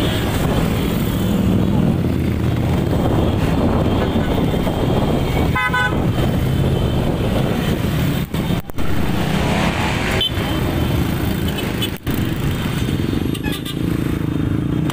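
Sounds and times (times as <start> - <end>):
motorcycle engines rumbling: 0.0 - 14.9
horn toot: 5.4 - 6.1.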